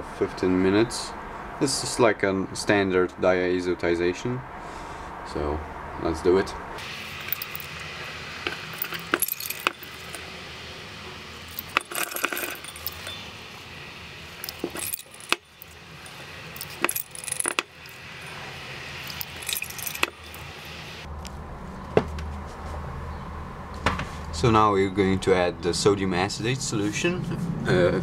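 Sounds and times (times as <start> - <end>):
glass pipette clinking in beaker: 19.1 - 20.5.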